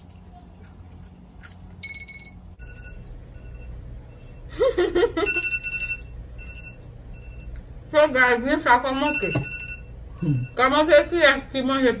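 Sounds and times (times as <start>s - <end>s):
electronic timer beeping: 9.0s - 10.7s.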